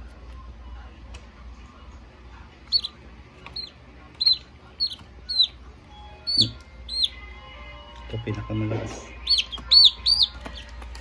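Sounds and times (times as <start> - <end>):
chick peeping: 2.6 - 5.6, 6.2 - 7.2, 9.2 - 11.0.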